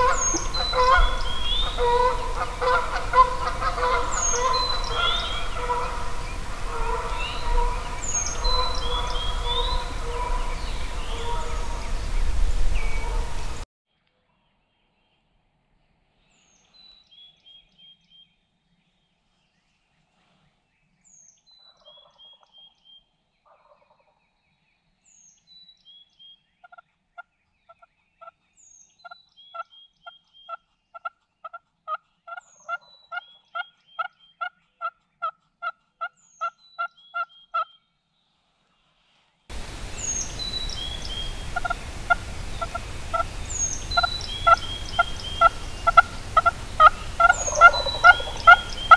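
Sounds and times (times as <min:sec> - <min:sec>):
turkey call yelps: 0:00.0 - 0:12.0, 0:40.0 - 0:48.9
background hiss: 0:00.0 - 0:13.6, 0:38.3 - 0:48.9
songbird singing: 0:00.0 - 0:13.6, 0:14.3 - 0:23.5, 0:24.2 - 0:35.4, 0:36.1 - 0:38.0, 0:39.5 - 0:48.9.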